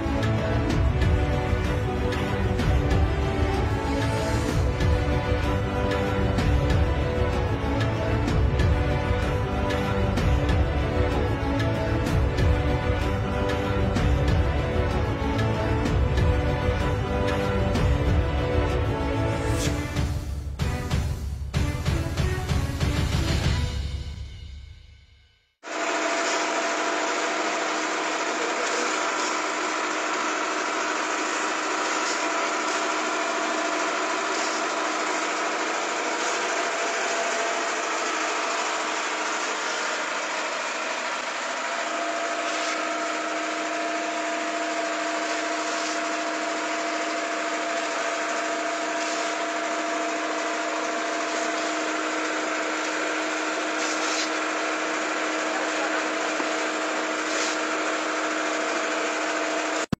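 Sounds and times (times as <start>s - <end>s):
machinery hum: 25.6s - 60.0s.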